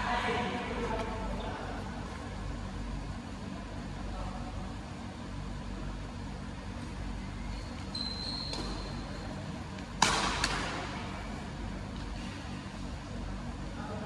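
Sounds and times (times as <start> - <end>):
steady background hum: 0.0 - 14.0
high shoe squeak: 7.4 - 9.3
rackets hitting shuttlecock: 9.8 - 11.1.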